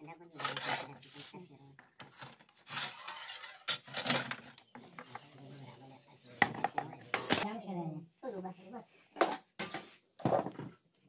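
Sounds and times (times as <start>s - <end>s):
metal tray scraping on brick: 0.4s - 1.2s, 2.6s - 4.6s.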